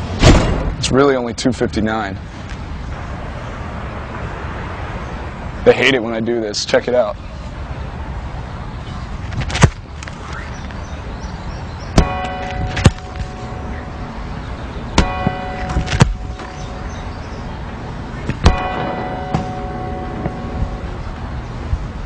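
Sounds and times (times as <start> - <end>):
footballs kicked with thuds: 12.0 - 13.4, 15.0 - 16.6
clock-tower bell striking: 12.0 - 17.4, 18.4 - 21.4.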